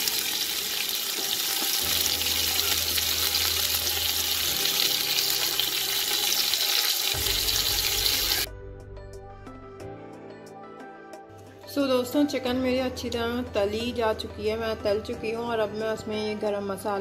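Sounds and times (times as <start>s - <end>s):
chicken sizzling in hot oil: 0.0s - 8.5s
soft background music: 0.0s - 17.0s.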